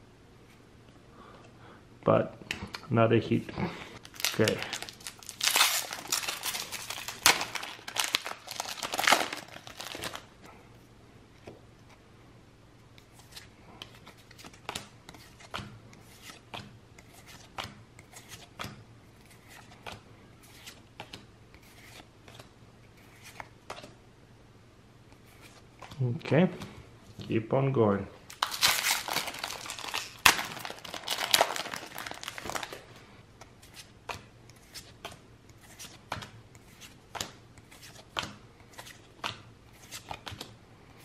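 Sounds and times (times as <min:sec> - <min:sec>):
foil pack tearing and crinkling: 0:04.1 - 0:10.3, 0:28.3 - 0:32.8.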